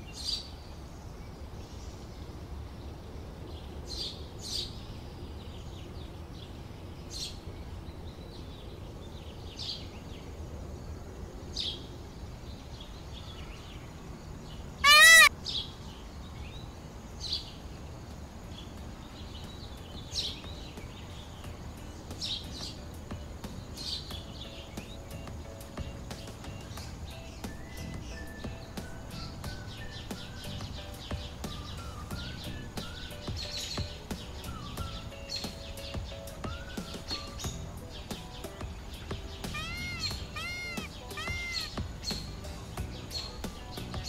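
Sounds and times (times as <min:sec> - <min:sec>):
small birds chirping: 0:00.0 - 0:44.0
peacock call: 0:14.8 - 0:15.3, 0:39.3 - 0:42.4.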